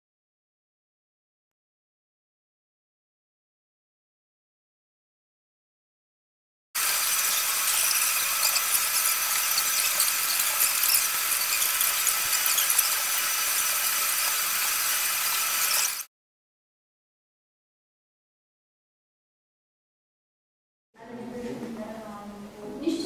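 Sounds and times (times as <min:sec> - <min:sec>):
tram wheels squealing on rails: 0:06.8 - 0:16.0.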